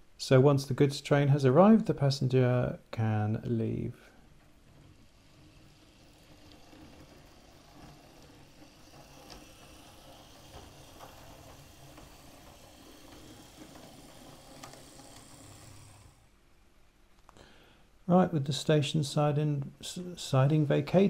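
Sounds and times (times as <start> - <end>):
wheels clicking over rail joints: 4.3 - 16.2
model train motor hum: 4.7 - 16.3.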